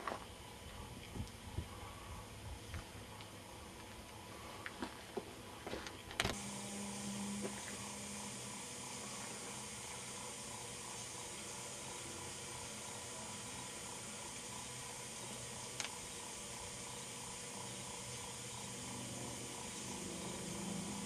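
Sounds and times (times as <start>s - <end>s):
low hum: 0.0s - 16.9s.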